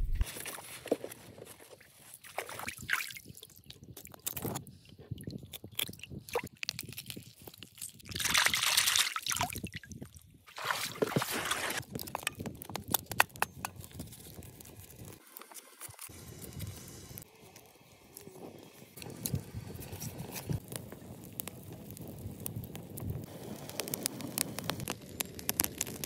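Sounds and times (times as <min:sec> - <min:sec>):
water sloshing and dripping: 0:08.2 - 0:11.8.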